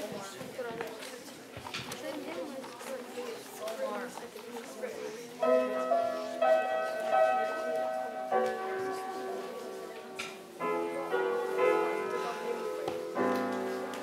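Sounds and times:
grand piano chords ringing: 5.4s - 14.0s.

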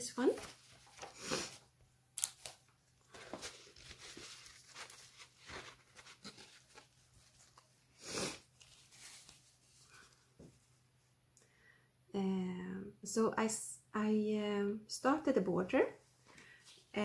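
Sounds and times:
fabric rustling: 0.0s - 1.6s, 3.0s - 7.9s, 8.5s - 10.8s.

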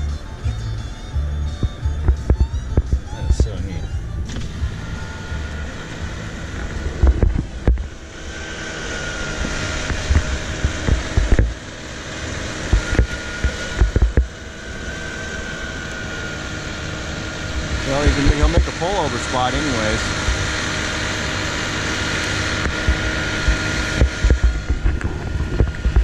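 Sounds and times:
low thumps: 0.0s - 8.2s, 12.6s - 14.4s, 22.4s - 26.0s
high whine: 0.0s - 26.0s
snowblower running: 0.0s - 26.0s.

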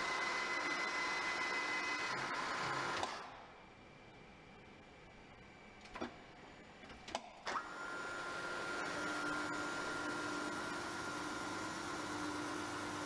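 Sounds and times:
milling machine running: 0.0s - 3.3s, 7.5s - 13.0s.

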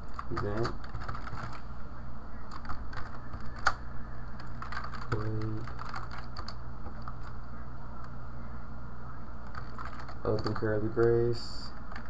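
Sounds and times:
computer keyboard typing: 0.0s - 1.6s, 2.5s - 7.4s, 9.4s - 12.0s
steady low hum: 0.0s - 12.0s.

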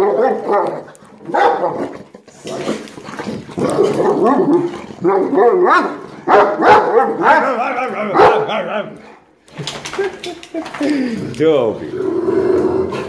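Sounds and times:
dogs barking: 0.0s - 2.1s, 3.5s - 9.4s.

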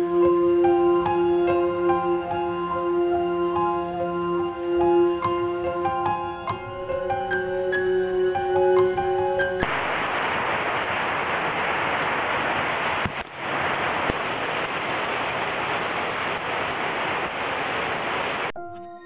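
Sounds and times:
steady hiss: 6.8s - 18.6s.

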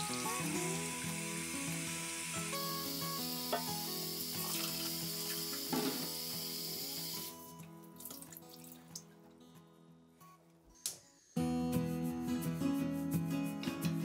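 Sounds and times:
quiet background music: 0.0s - 14.0s
tap water running into sink: 0.8s - 7.4s.

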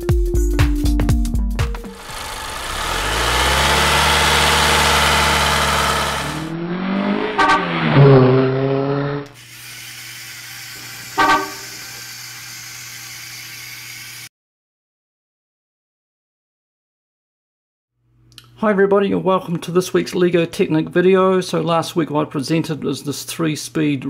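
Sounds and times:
engine-like noise: 1.8s - 9.6s, 10.3s - 14.3s
car horn sliding pitch: 4.8s - 9.2s, 11.2s - 11.8s.

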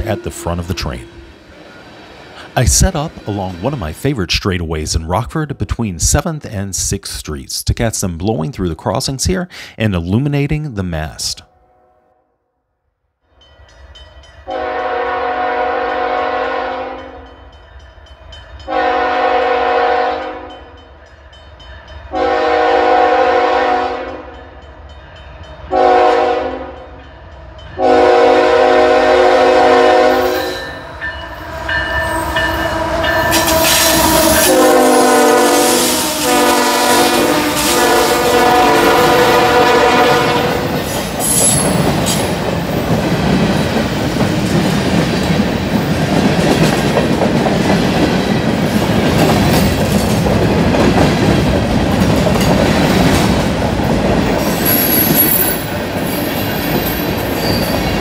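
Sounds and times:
locomotive engine rumble: 0.0s - 4.2s
train wheel noise: 0.0s - 4.4s, 28.5s - 58.0s
locomotive air horn blasts: 14.5s - 17.2s, 18.7s - 20.5s, 22.1s - 24.3s, 25.7s - 26.8s, 27.8s - 30.5s, 32.1s - 40.7s.

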